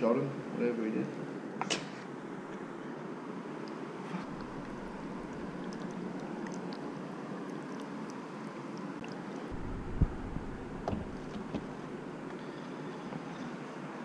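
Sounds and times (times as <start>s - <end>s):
steady background hiss: 0.0s - 14.0s
sharp thump: 9.6s - 11.7s.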